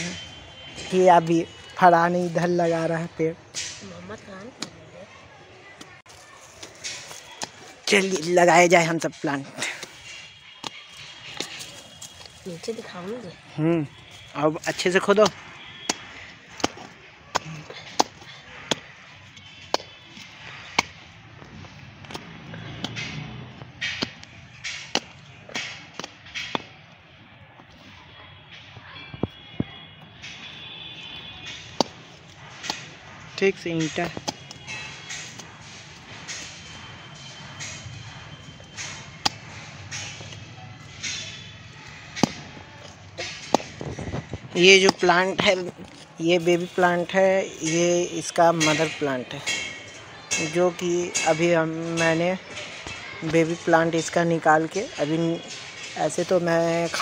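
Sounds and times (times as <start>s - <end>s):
hand tool striking stony soil: 14.6s - 19.0s, 19.6s - 26.8s, 31.4s - 54.2s
sharp knocks: 31.2s - 45.8s.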